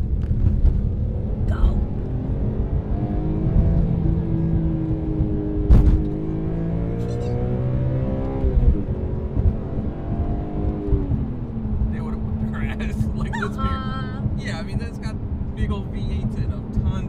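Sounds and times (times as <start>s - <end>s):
car engine accelerating: 0.0s - 17.0s
gear change clunk: 5.0s - 6.3s.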